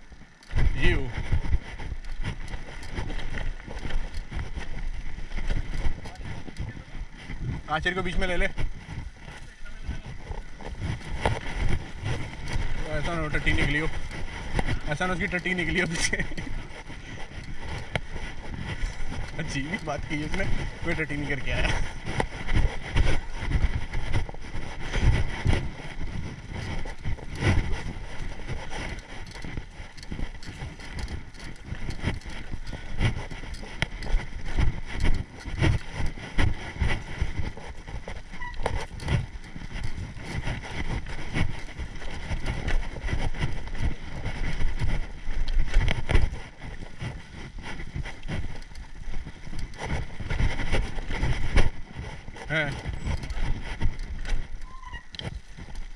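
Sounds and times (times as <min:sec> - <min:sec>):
bike rattling and thumping: 0:00.0 - 0:55.9
wind buffeting microphone: 0:00.0 - 0:55.9.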